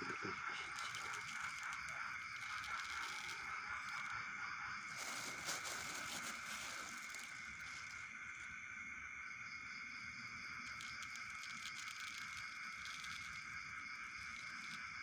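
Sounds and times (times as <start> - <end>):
plastic bag rustling and crinkling: 0.7 - 4.2, 4.9 - 8.5.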